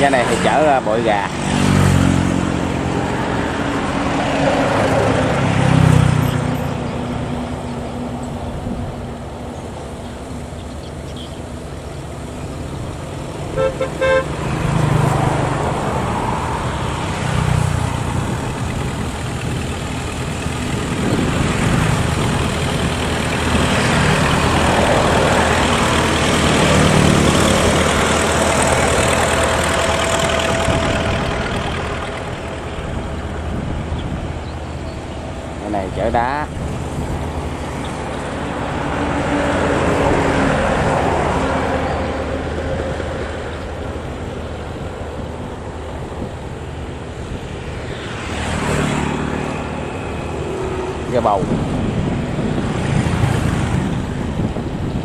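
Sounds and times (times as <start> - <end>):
boat engines humming: 0.0 - 55.0
boat horn double toot: 13.5 - 14.4.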